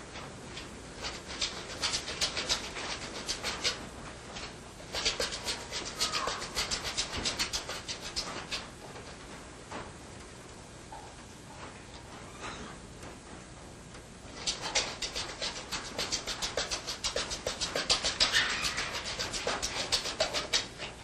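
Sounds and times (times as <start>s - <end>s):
animals rattling wire cages: 4.9s - 8.6s, 14.4s - 20.9s
animal whine: 5.6s - 6.6s, 18.2s - 19.3s.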